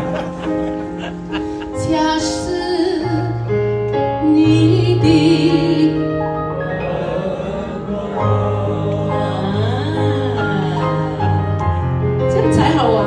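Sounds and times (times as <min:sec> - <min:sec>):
woman singing a ballad: 0:01.8 - 0:03.6, 0:04.2 - 0:06.2.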